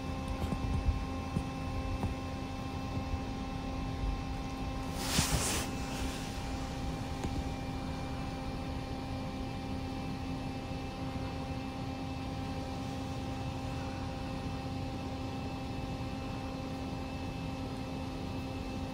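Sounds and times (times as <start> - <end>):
electrical hum with tones: 0.0 - 18.9
hiss: 4.8 - 7.2
brief rustle: 4.9 - 6.4.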